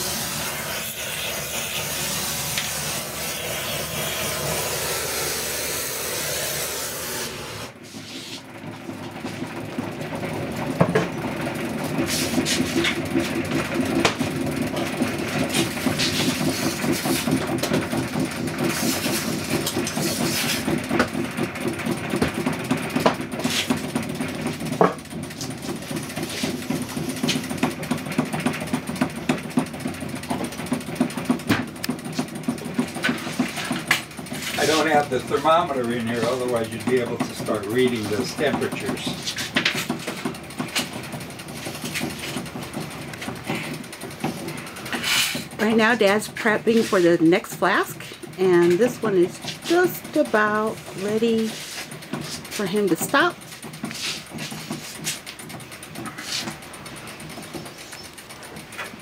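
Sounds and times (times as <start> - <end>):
gas torch hissing: 0.0 - 8.4
casting machine arm whirring: 0.0 - 9.6, 30.2 - 59.0.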